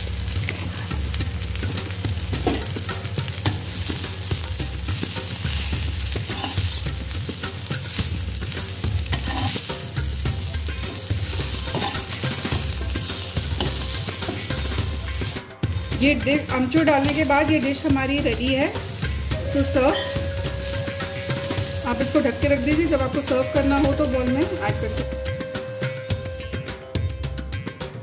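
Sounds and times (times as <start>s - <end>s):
vegetables sizzling in a pan: 0.0s - 25.0s
metal spatula scraping a pan: 5.0s - 15.4s, 18.8s - 22.9s.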